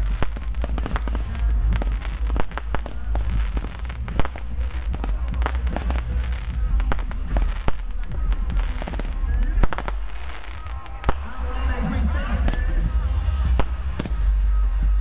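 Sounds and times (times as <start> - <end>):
fireworks bangs and crackles: 0.0 - 15.0
low rumble: 0.0 - 15.0.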